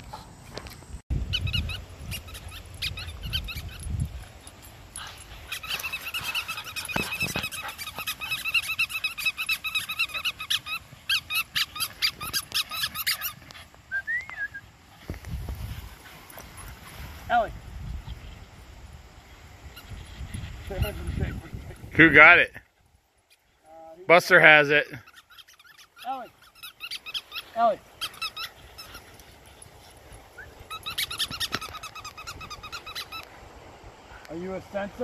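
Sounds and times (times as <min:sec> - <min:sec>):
small dogs yapping: 0:01.3 - 0:17.2, 0:24.9 - 0:33.4.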